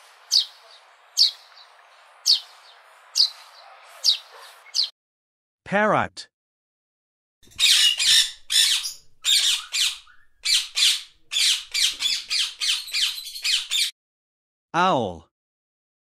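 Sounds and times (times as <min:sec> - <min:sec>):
parrot squawking: 0:07.5 - 0:13.9.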